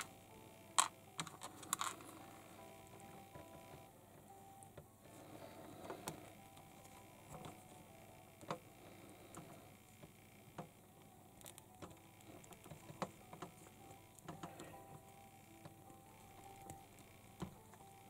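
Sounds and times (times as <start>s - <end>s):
faint steady hum: 0.0s - 18.0s
plastic toy parts clicking: 0.8s - 2.1s.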